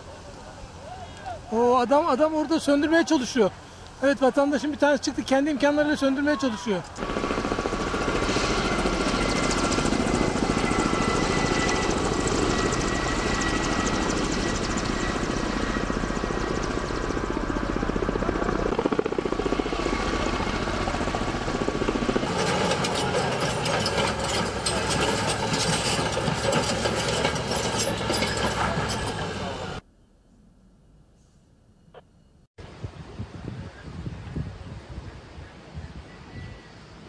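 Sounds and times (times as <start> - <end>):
helicopter rotor and engine: 4.0 - 29.8
bulldozer engine running: 7.0 - 29.8
knocks and rattles: 22.2 - 29.4.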